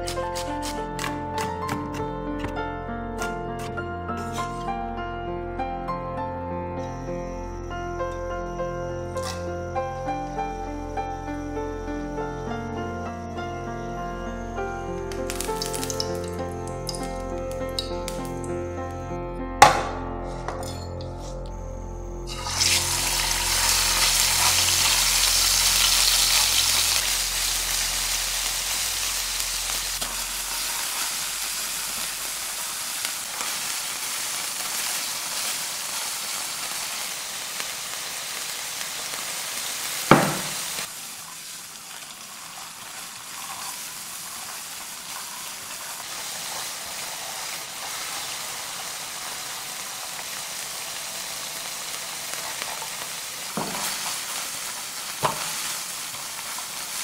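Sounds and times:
ground beef sizzling in a pan: 0:15.1 - 0:18.5, 0:22.3 - 0:57.0
sharp knock: 0:40.1 - 0:40.6.

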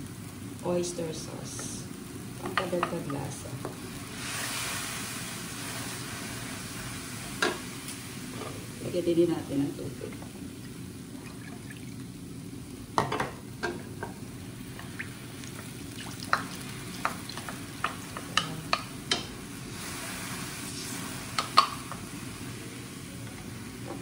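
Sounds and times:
sauce sizzling: 0:00.0 - 0:24.0
spatula knocking on bowl and wok: 0:16.3 - 0:19.3.

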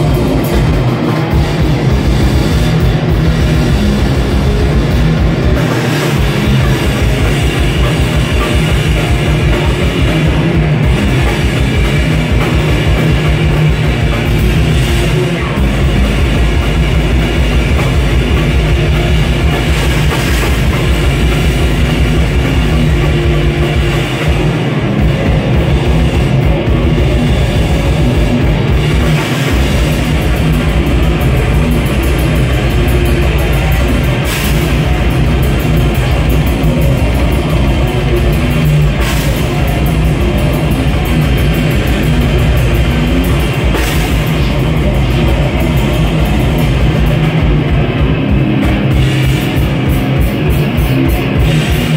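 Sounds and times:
distorted electric guitar: 0:00.0 - 0:51.9
drum kit: 0:00.0 - 0:51.9.

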